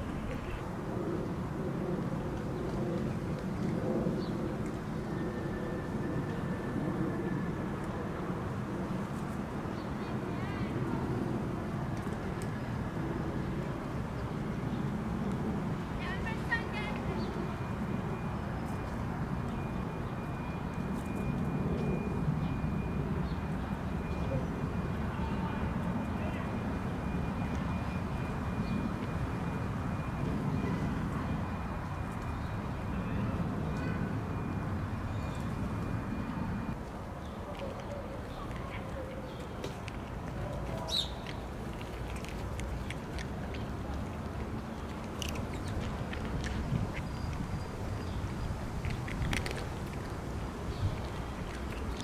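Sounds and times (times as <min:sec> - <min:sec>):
low urban rumble: 0:00.0 - 0:52.0
cat crunching dry kibble: 0:39.7 - 0:52.0.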